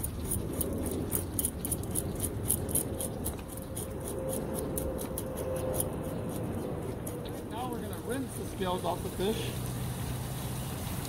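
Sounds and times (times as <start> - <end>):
fish scaler scraping scales: 0.0 - 8.5.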